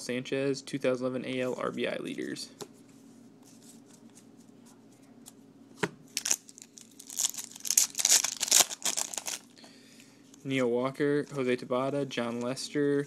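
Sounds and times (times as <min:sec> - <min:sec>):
foil wrapper crinkling tearing: 0:06.2 - 0:09.5.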